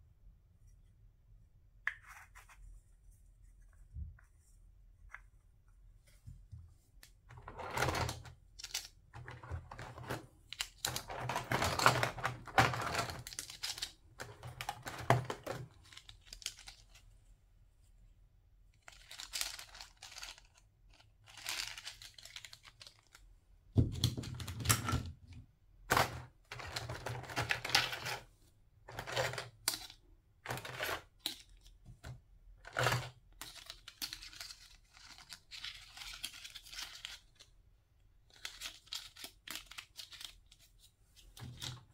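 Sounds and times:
plastic toy pieces clattering: 0:07.4 - 0:16.8, 0:28.9 - 0:31.6, 0:32.6 - 0:37.3.

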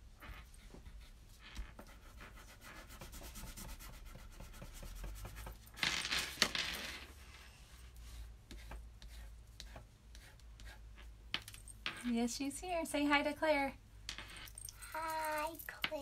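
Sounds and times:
pen scratching on paper: 0:00.5 - 0:05.6, 0:08.0 - 0:10.8.

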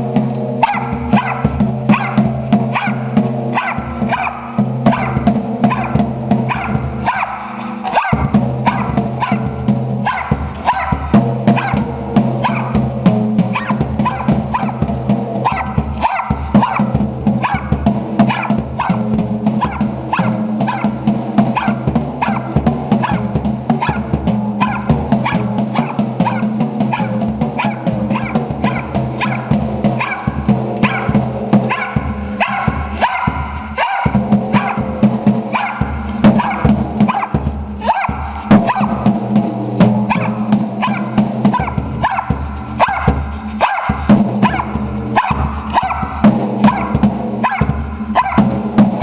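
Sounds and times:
dog barking: 0:00.5 - 0:49.0
kick drum beats: 0:39.8 - 0:49.0.

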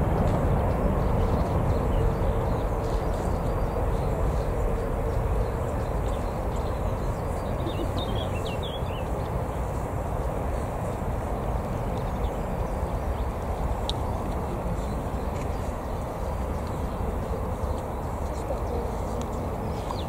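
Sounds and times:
faint engine whine: 0:00.0 - 0:20.0
jet engines rumbling: 0:00.0 - 0:20.0
bird chirps: 0:05.4 - 0:09.2.

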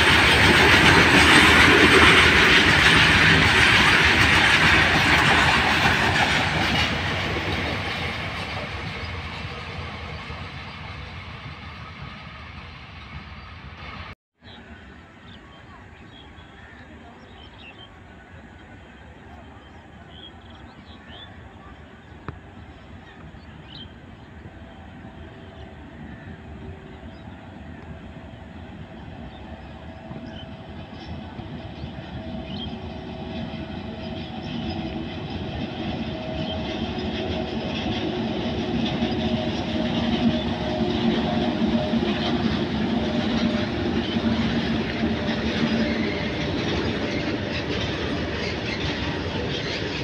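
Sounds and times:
train wheels clattering on rails: 0:00.0 - 0:13.8, 0:28.8 - 0:50.0
electric locomotive hum: 0:00.0 - 0:16.7, 0:17.3 - 0:50.0.

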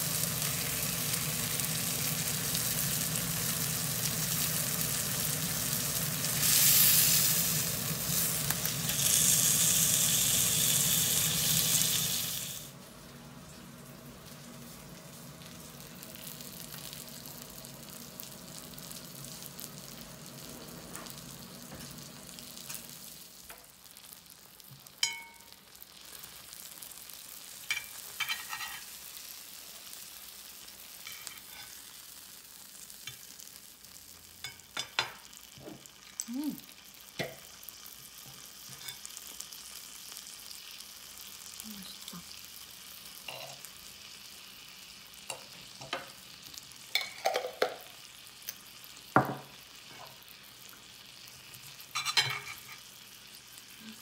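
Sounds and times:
steak sizzling in a pan: 0:00.0 - 0:54.0
cutlery clinking: 0:27.7 - 0:28.9, 0:51.9 - 0:52.8.

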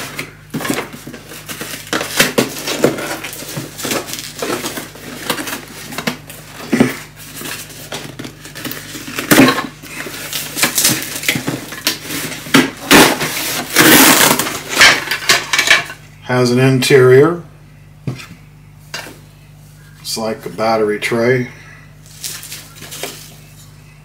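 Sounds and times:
cardboard box being opened: 0:00.6 - 0:09.4.

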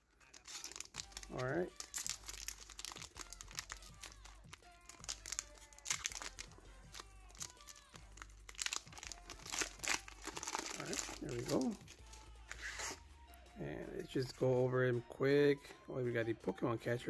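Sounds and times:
foil wrapper crinkling and tearing: 0:00.0 - 0:13.0.

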